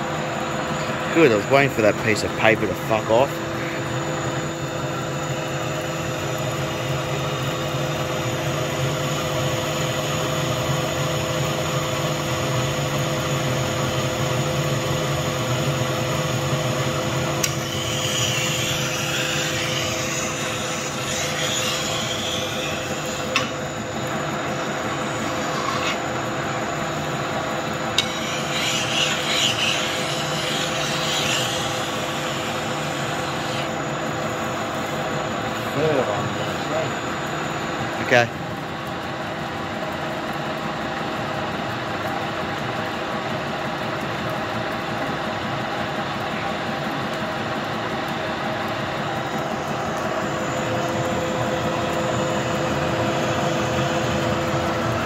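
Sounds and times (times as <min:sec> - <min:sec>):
metal lathe humming: 0:00.0 - 0:55.0
scratchy metal cutting: 0:17.4 - 0:23.8, 0:24.9 - 0:26.1, 0:27.8 - 0:33.8.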